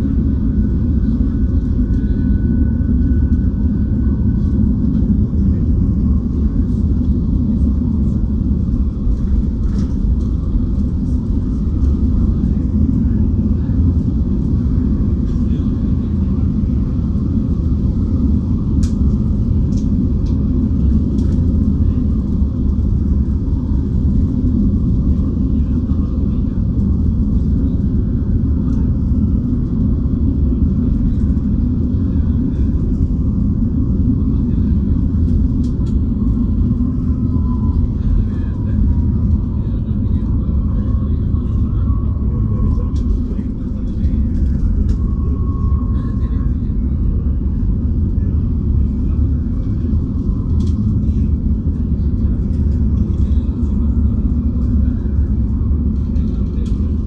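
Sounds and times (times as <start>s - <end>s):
bus engine and road rumble: 0.0s - 57.0s.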